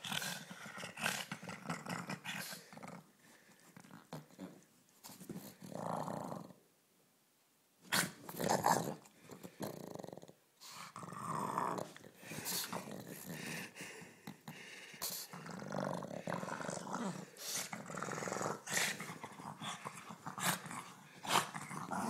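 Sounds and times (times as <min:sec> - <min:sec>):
dog growling: 0:00.0 - 0:03.1, 0:05.4 - 0:06.6, 0:07.9 - 0:22.0.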